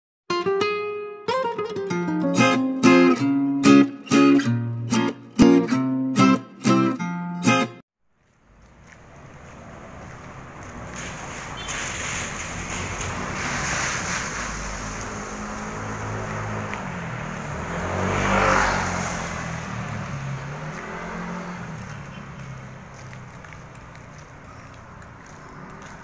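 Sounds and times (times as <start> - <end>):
traffic passing: 8.0 - 26.0
motorcycle passing: 8.2 - 26.0.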